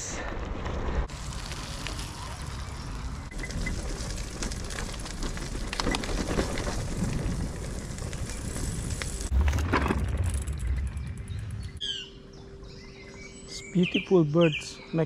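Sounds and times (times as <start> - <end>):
bike rolling on dirt path: 0.0 - 12.5
bike rumbling over wooden bridge: 0.6 - 11.8
bike knocks and rattles: 3.3 - 11.8
bird chirping: 10.6 - 15.0.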